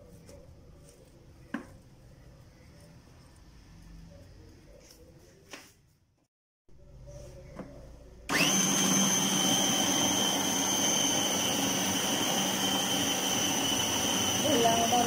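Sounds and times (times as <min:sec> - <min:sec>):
food processor whining: 0:08.3 - 0:15.0.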